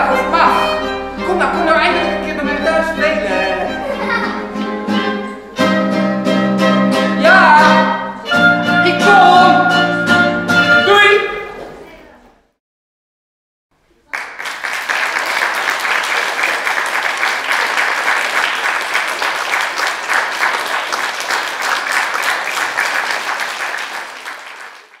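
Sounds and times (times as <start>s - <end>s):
children applauding: 14.1s - 25.0s.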